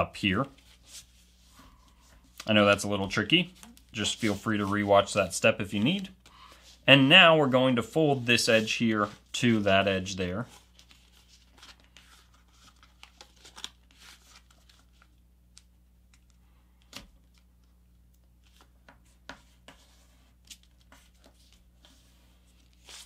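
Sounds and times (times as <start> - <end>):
paper rustling and crinkling: 8.1 - 15.2.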